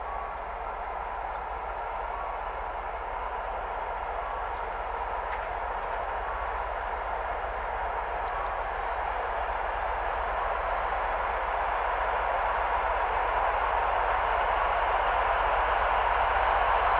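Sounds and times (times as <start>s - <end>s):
birds chirping: 0.0s - 9.3s
diesel locomotive engine: 0.0s - 16.9s.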